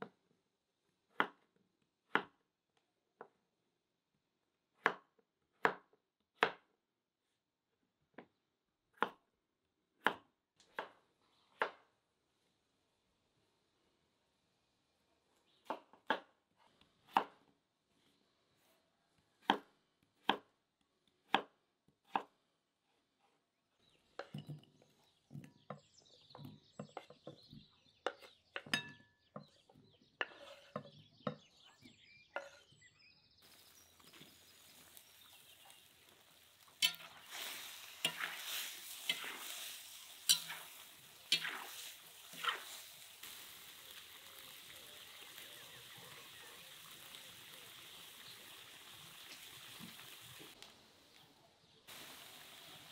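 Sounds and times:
knife chopping on wooden board: 0:01.1 - 0:01.5, 0:02.1 - 0:02.4, 0:04.8 - 0:06.7, 0:09.0 - 0:09.2, 0:17.1 - 0:17.4, 0:19.4 - 0:20.5, 0:21.2 - 0:22.3
food sizzling in a pot: 0:33.4 - 0:50.6, 0:51.9 - 0:52.9.

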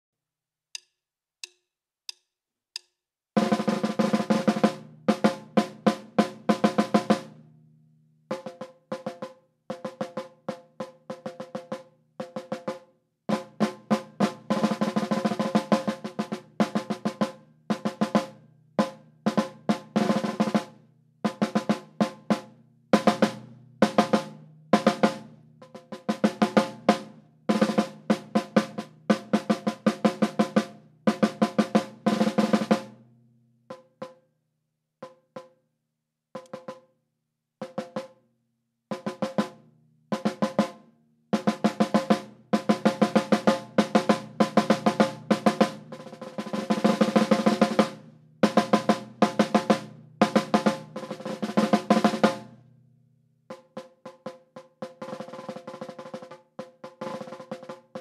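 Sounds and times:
snare drum rolls: 0:03.4 - 0:07.3, 0:08.3 - 0:20.7, 0:21.3 - 0:32.9, 0:41.4 - 0:52.5, 0:53.5 - 0:58.0.

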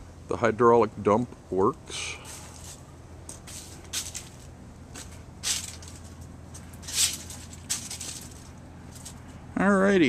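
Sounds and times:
steady low hum: 0:00.0 - 0:10.0
footsteps scuffing on leafy pavement: 0:02.2 - 0:09.2.

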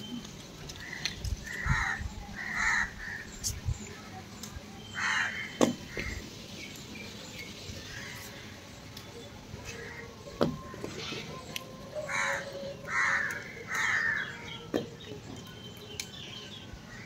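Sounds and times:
crow cawing: 0:00.8 - 0:03.3, 0:05.0 - 0:06.2, 0:12.1 - 0:14.4.

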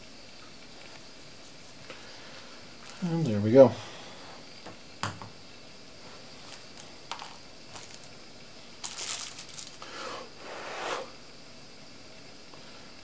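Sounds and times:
aluminium foil crinkling: 0:02.8 - 0:03.4, 0:06.1 - 0:09.9.

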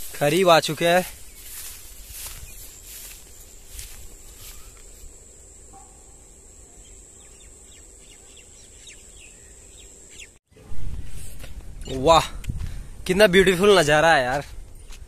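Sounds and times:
high-pitched insect trill: 0:00.0 - 0:10.4
bird chirps: 0:06.7 - 0:10.4.

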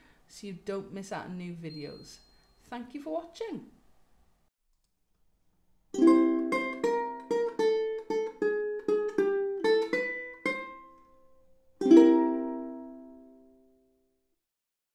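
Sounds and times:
ukulele strummed chord: 0:06.0 - 0:11.2, 0:11.8 - 0:13.7
plucked ukulele melody: 0:06.0 - 0:13.6.

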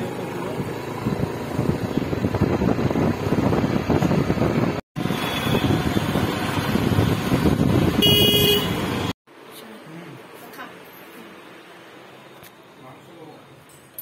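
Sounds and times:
vehicle rumble and road noise: 0:00.0 - 0:14.0
wind buffeting microphone: 0:01.0 - 0:04.8, 0:05.5 - 0:08.0.

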